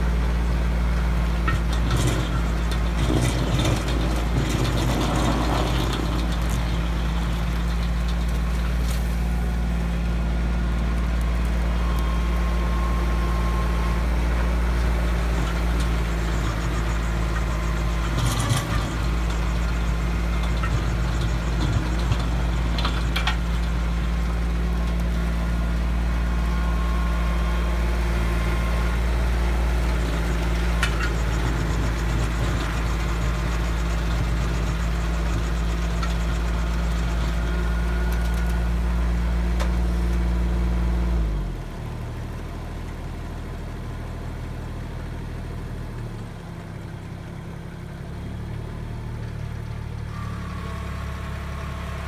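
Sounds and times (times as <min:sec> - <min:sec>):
tractor engine running under load: 0:00.0 - 0:52.0
stump grinder grinding: 0:00.1 - 0:40.4.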